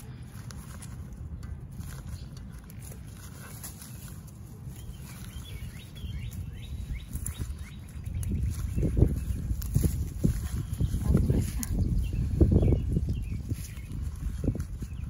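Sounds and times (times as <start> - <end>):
hands rustling through leaves: 0.0 - 15.0.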